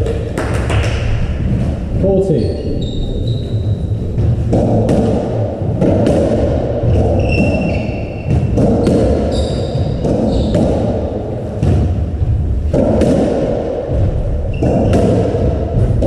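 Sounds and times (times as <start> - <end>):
ball hitting rackets and walls: 0.0 - 1.8, 2.8 - 16.0
shoe squeaks on wooden floor: 2.3 - 4.0, 6.9 - 8.6, 9.2 - 10.7.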